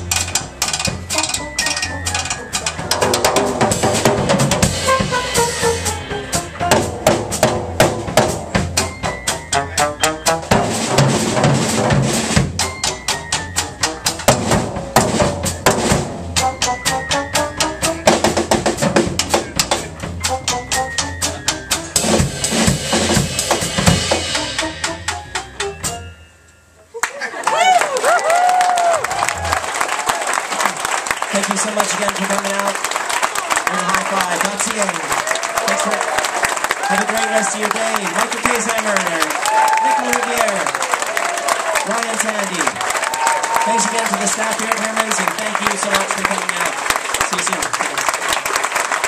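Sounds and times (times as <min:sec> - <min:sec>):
trombone lead: 0:00.0 - 0:25.9
drum kit: 0:00.0 - 0:26.2
small jazz band playing: 0:00.0 - 0:26.3, 0:31.4 - 0:48.9.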